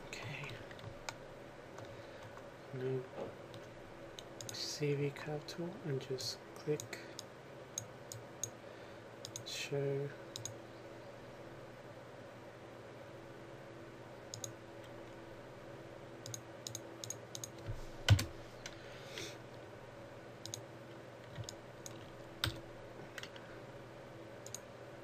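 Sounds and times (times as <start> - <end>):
faint steady hum: 0.0 - 25.0
computer mouse clicks: 3.5 - 4.6, 9.2 - 9.5, 10.3 - 10.6, 14.3 - 15.0, 16.2 - 18.8, 20.4 - 20.6, 21.3 - 22.6, 24.4 - 24.7.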